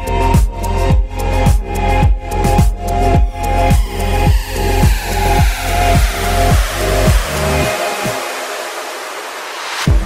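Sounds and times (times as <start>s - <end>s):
kick drum beat: 0.0s - 7.3s.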